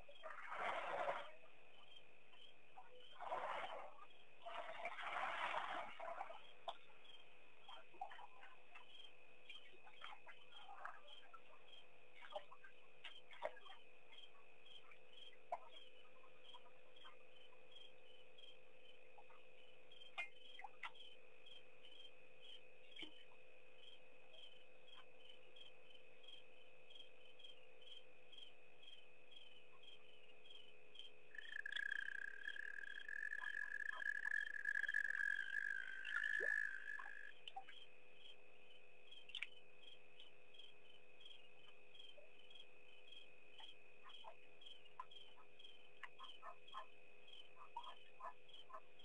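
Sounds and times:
crickets chirping: 0:00.0 - 0:49.0
steady high insect trill: 0:06.4 - 0:49.0
buzzing insect call: 0:31.0 - 0:37.4.

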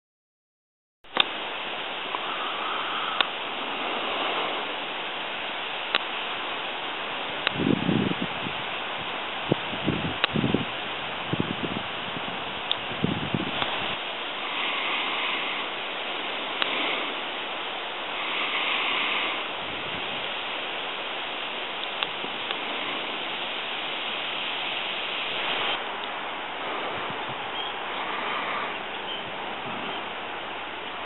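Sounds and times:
wind rustling leaves: 0:01.0 - 0:31.0
wind buffeting microphone: 0:01.2 - 0:31.0
faint clicks: 0:03.0 - 0:03.4, 0:07.4 - 0:07.6, 0:16.5 - 0:16.8, 0:21.8 - 0:22.7.

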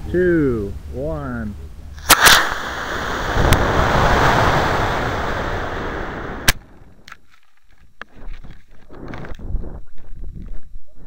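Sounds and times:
sharp clicks: 0:02.0 - 0:02.7
rocket motor exhaust rushing: 0:02.0 - 0:06.6.

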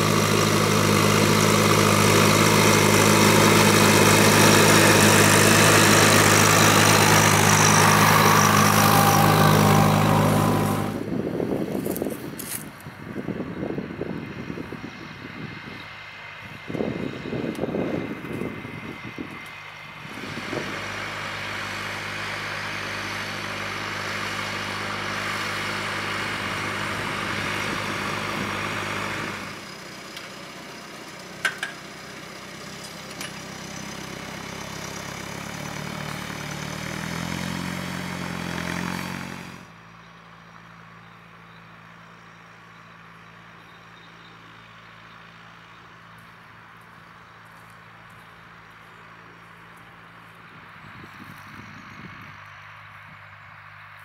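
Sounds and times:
tractor engine under load: 0:00.0 - 0:54.0.

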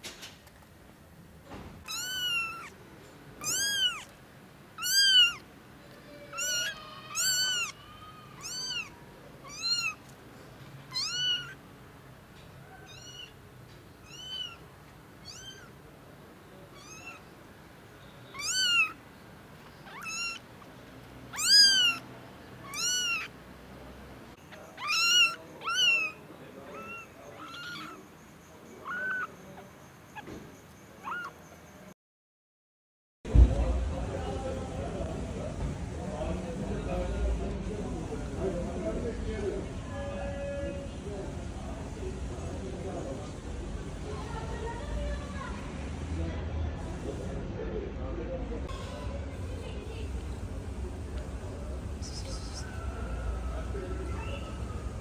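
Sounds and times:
kitten mewing: 0:01.8 - 0:02.8, 0:03.4 - 0:04.2, 0:04.8 - 0:05.5, 0:06.1 - 0:10.0, 0:10.9 - 0:11.6, 0:12.7 - 0:13.4, 0:14.0 - 0:15.8, 0:16.7 - 0:17.3, 0:18.3 - 0:19.0, 0:19.8 - 0:20.5, 0:21.3 - 0:23.4, 0:24.6 - 0:28.0, 0:28.8 - 0:29.3, 0:31.0 - 0:31.4.

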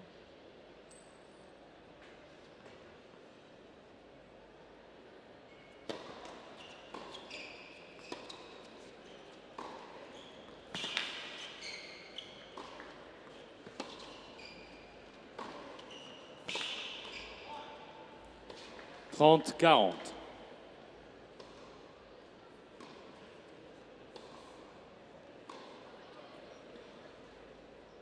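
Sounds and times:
shoe squeaks on court: 0:06.5 - 0:09.4, 0:10.1 - 0:12.6, 0:13.8 - 0:15.0, 0:15.7 - 0:17.5.

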